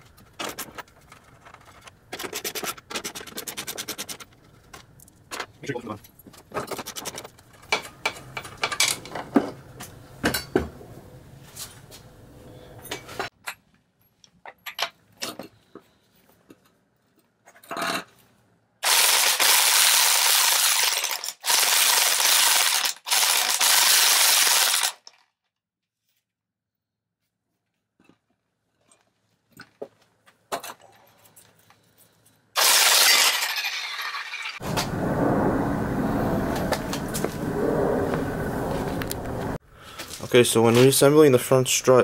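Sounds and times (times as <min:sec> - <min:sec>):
impact wrench spinning nut: 0:18.8 - 0:25.0, 0:32.6 - 0:34.5.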